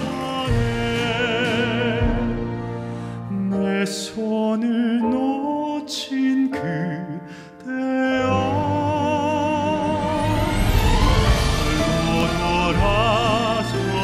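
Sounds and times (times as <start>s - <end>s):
instrumental accompaniment: 0.0s - 4.4s, 6.6s - 14.0s
man singing ballad: 0.0s - 14.0s
singer breathing: 2.6s - 3.3s, 7.2s - 7.6s.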